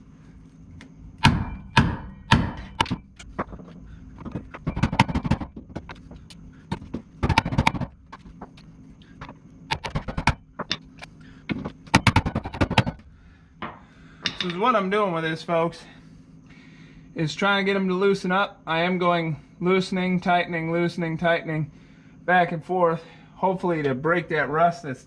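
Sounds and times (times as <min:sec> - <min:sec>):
hammer knocking on metal: 0:01.2 - 0:03.1, 0:04.2 - 0:06.1, 0:06.7 - 0:07.9, 0:13.6 - 0:14.6.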